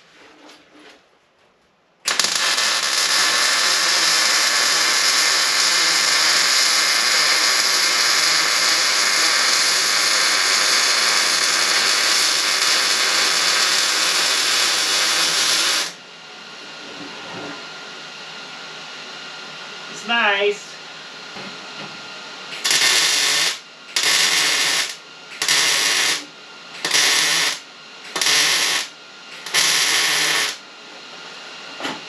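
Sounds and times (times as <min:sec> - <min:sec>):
steady hum: 0:01.9 - 0:32.0
welder arc sizzling: 0:02.1 - 0:16.0, 0:22.5 - 0:30.6.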